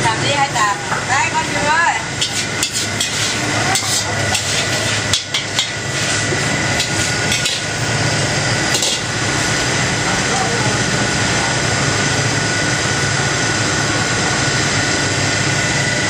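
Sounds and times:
metal ladle scraping steel wok: 0:02.2 - 0:07.8, 0:08.7 - 0:09.2.

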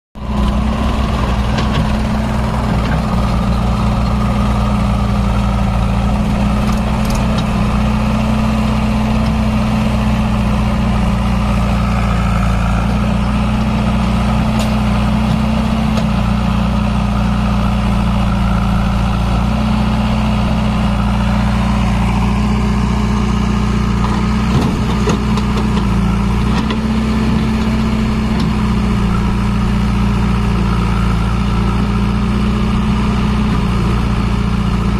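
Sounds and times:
tractor diesel engine running: 0:00.2 - 0:34.9.

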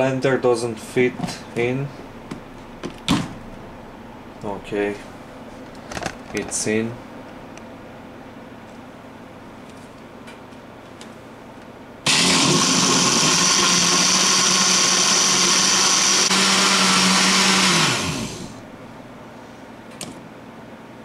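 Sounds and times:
blender running: 0:12.1 - 0:18.6.

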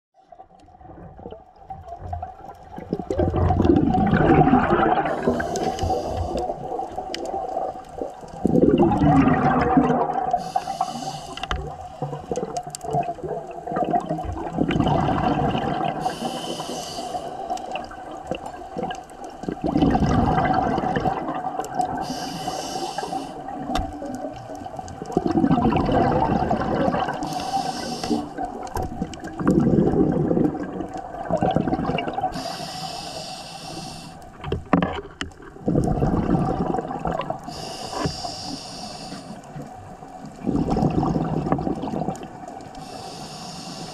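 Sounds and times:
exhaled bubbles rushing: 0:00.7 - 0:22.2, 0:22.8 - 0:32.6, 0:34.4 - 0:38.1, 0:39.5 - 0:42.8
scuba regulator inhalations hissing: 0:04.7 - 0:06.8, 0:09.9 - 0:12.0, 0:15.9 - 0:17.8, 0:21.8 - 0:23.7, 0:26.5 - 0:28.5, 0:32.2 - 0:34.4, 0:37.4 - 0:39.6, 0:42.8 - 0:43.9.

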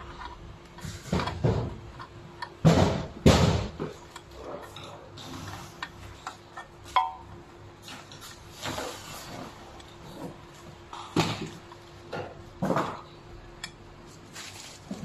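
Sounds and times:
bubble wrap crinkling: 0:14.1 - 0:15.0.

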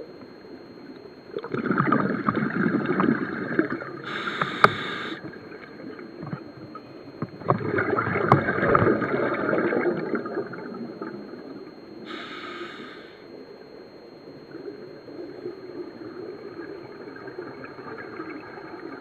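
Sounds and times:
exhaled bubbles rushing: 0:01.3 - 0:04.6, 0:07.4 - 0:11.7
scuba regulator hissing inhale: 0:04.1 - 0:05.2, 0:12.1 - 0:13.2.

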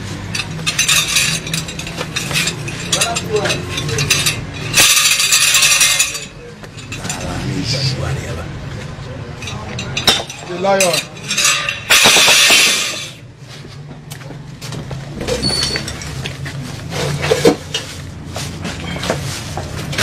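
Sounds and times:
metal pots clanking and knocking: 0:09.5 - 0:13.2
loud crash: 0:11.9 - 0:13.2.

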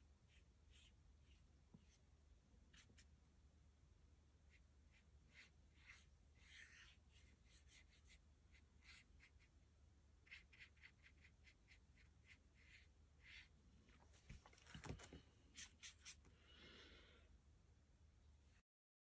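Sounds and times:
paintbrush strokes on paper: 0:00.3 - 0:02.1, 0:02.7 - 0:03.1, 0:04.5 - 0:09.6, 0:10.2 - 0:13.6, 0:15.0 - 0:16.3.

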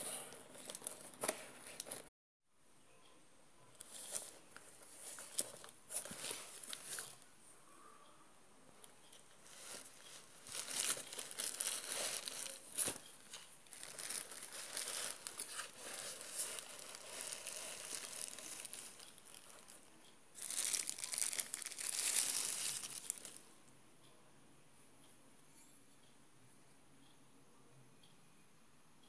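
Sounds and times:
plastic bag crinkling: 0:00.3 - 0:02.1, 0:09.2 - 0:23.4.

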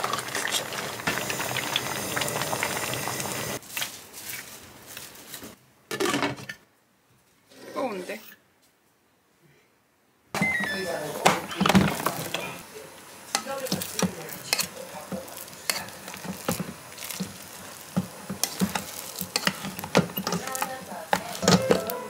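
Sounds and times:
light sizzle: 0:00.0 - 0:05.6, 0:10.4 - 0:22.0
utensil scraping a pan: 0:13.4 - 0:22.0.

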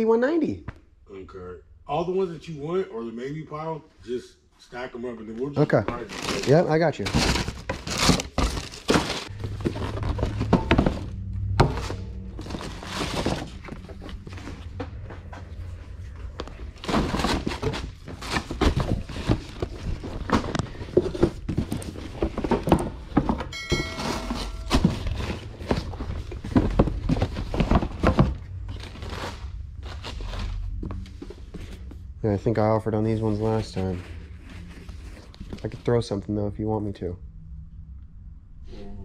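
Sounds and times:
cardboard rustling: 0:05.9 - 0:14.8, 0:16.0 - 0:32.0
cardboard boxes thunking: 0:07.1 - 0:13.8, 0:16.8 - 0:29.2
short pitched tone: 0:23.5 - 0:25.6.

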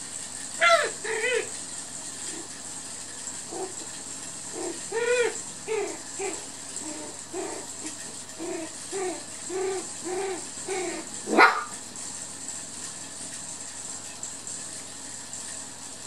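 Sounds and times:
puppy yelping sharply: 0:00.6 - 0:01.5, 0:10.2 - 0:11.8
puppies yipping: 0:00.6 - 0:01.6, 0:04.5 - 0:11.8.

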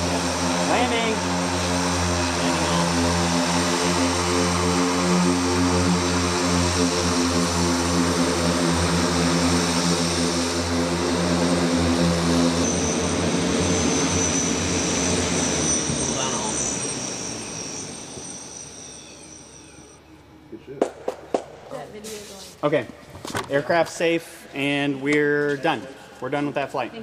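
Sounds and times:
multirotor aircraft humming: 0:00.0 - 0:20.5
thin high whine: 0:11.9 - 0:20.5.

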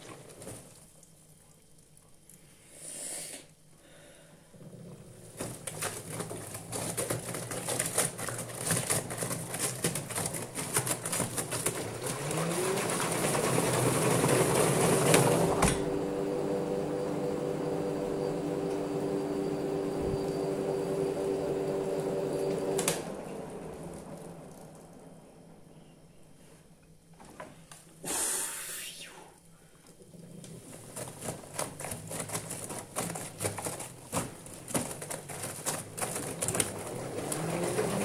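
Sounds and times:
washing machine motor whine: 0:04.6 - 0:26.5, 0:30.0 - 0:38.0
towels clattering in drum: 0:05.2 - 0:16.2, 0:30.5 - 0:38.0.

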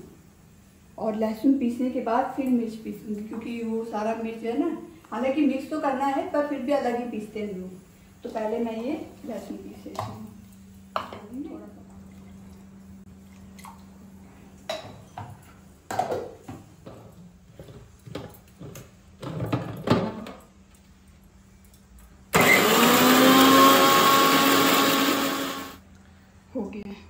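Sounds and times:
electric mixer grinder running: 0:22.4 - 0:25.8.

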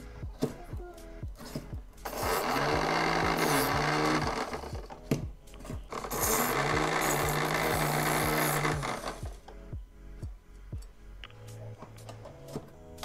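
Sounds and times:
knife sharpener motor whirring: 0:02.1 - 0:04.9, 0:05.9 - 0:09.3.

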